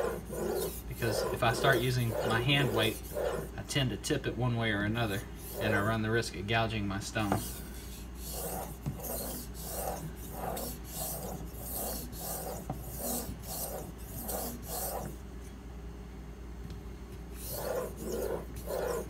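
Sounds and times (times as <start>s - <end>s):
knife scraping on whetstone: 0.0s - 3.6s, 7.2s - 15.2s, 17.4s - 19.0s.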